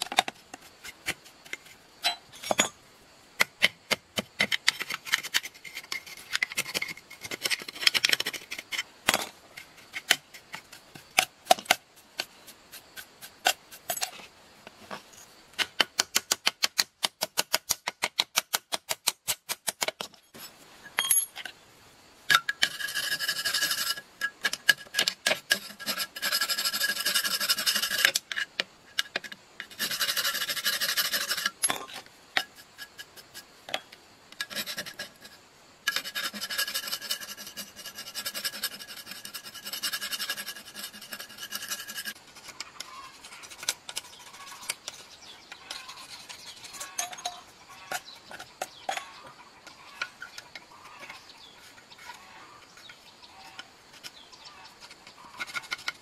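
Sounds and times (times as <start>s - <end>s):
metal scraping and rubbing: 22.3s - 33.5s, 34.4s - 56.0s.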